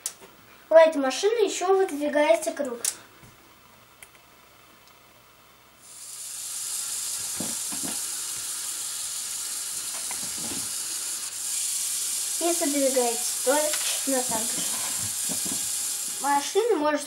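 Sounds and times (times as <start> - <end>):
winch line high hiss: 5.8 - 16.8.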